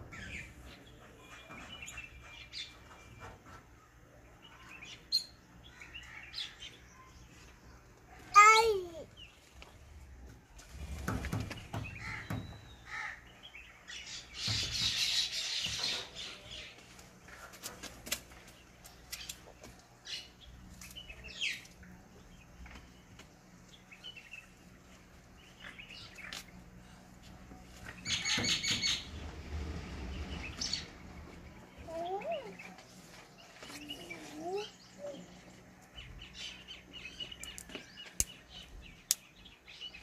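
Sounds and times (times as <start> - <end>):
small birds chirping: 0.0 - 40.0
crows cawing: 12.0 - 13.2.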